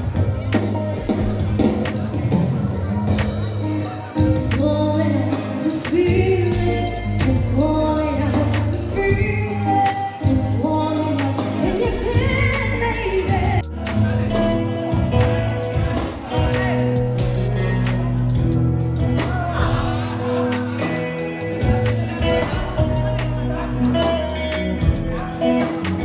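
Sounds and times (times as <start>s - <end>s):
person singing: 0.0s - 26.0s
beat with heavy bass: 11.7s - 26.0s.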